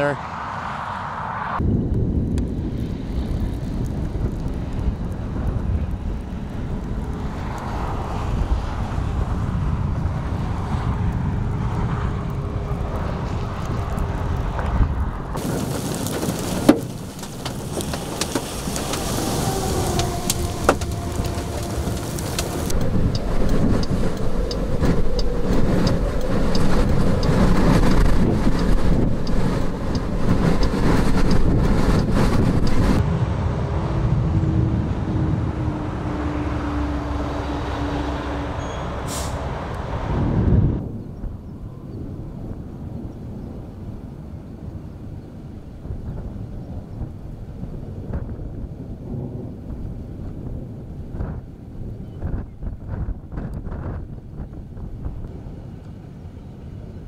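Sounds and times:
rain: 0:01.6 - 0:33.3, 0:36.5 - 0:57.0
wind on microphone: 0:01.6 - 0:57.0
sharp clicks: 0:19.9 - 0:32.8.

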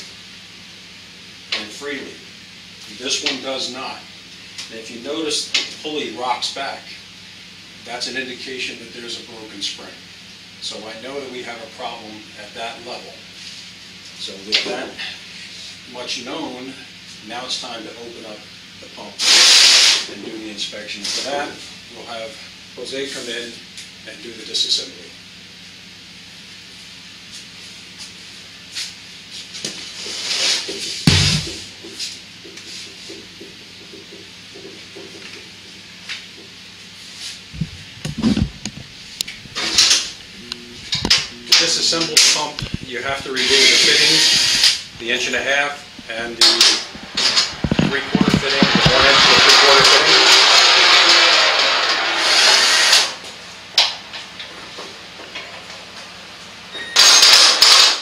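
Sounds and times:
low steady hum: 0:20.1 - 0:50.8.

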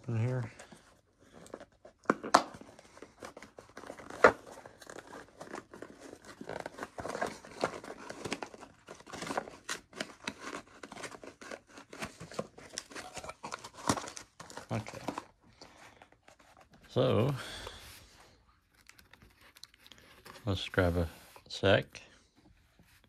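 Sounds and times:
packaging tearing and rustling: 0:01.3 - 0:17.0, 0:18.6 - 0:20.9.

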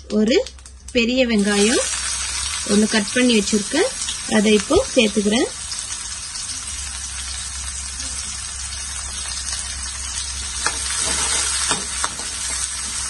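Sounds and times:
onions sizzling in hot oil: 0:00.1 - 0:13.0
spatula scraping a pan: 0:10.4 - 0:13.0.

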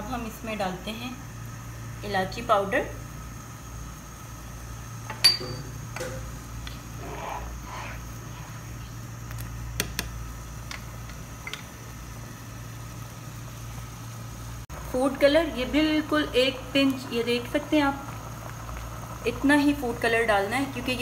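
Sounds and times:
steady low hum: 0:00.0 - 0:21.0
spoon knocking saucepan: 0:05.1 - 0:06.2.

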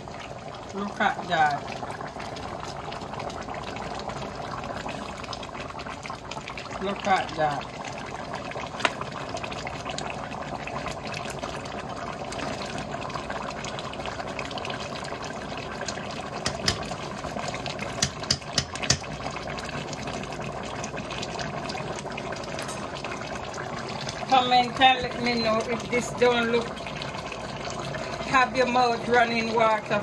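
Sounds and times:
thick gravy bubbling in pot: 0:00.0 - 0:30.0
spatula knocking against pot: 0:16.4 - 0:16.8, 0:18.0 - 0:19.1.

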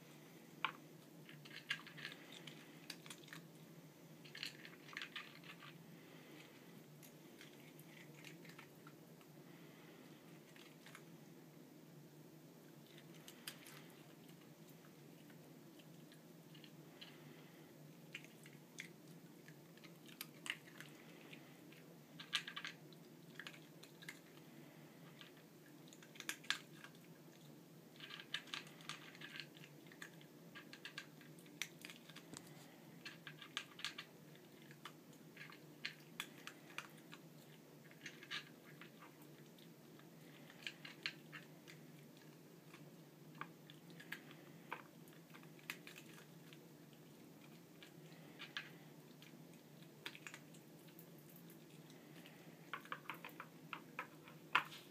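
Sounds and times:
kibble clicking on plastic: 0:47.5 - 0:54.9.

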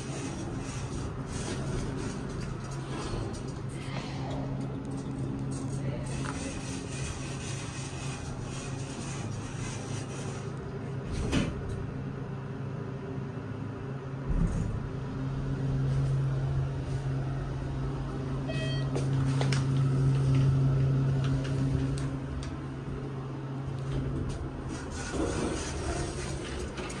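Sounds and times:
elevator hydraulic drive hum: 0:14.0 - 0:27.0
short electronic chime: 0:18.5 - 0:18.9.

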